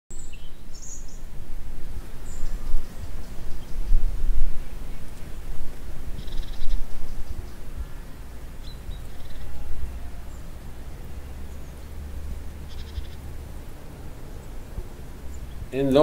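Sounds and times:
gusty wind rumble: 0.1 - 16.0
chattering bird calls: 6.1 - 11.9, 12.6 - 13.4.

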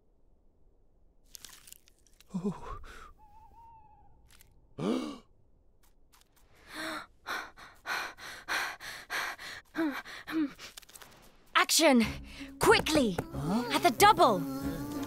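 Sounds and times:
quick breathy panting: 6.6 - 10.9.

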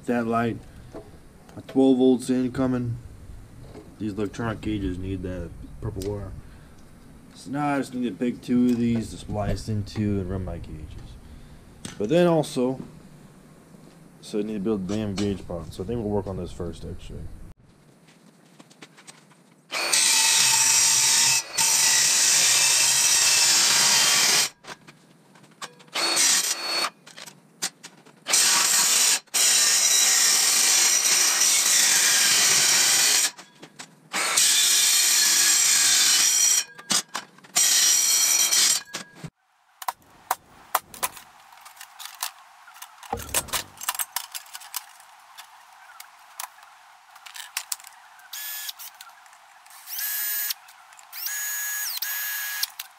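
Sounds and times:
circular saw cutting steel: 19.8 - 24.6, 28.3 - 33.4, 34.2 - 36.8, 37.6 - 39.0
clicks and clatter of handling: 40.8 - 45.5.

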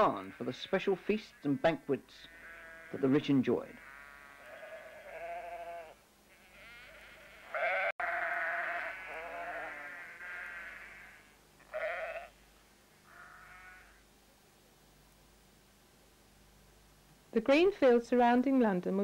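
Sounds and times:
sheep bleating: 0.0 - 12.4, 13.0 - 14.0.

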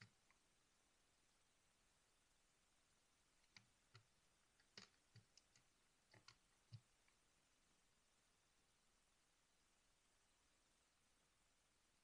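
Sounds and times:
keycaps clicking off keyboard: 3.4 - 6.9.

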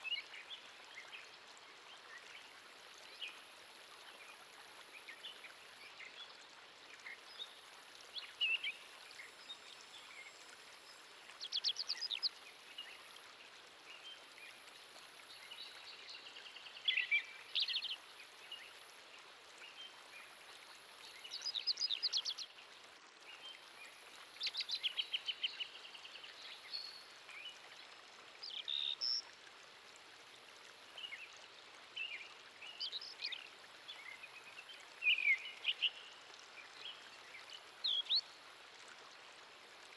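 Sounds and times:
background hiss: 0.0 - 39.9.

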